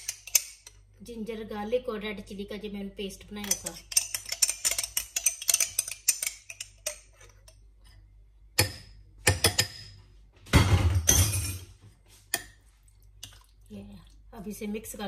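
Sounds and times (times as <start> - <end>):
metal spoons clinking on glass bowl: 3.4 - 7.0.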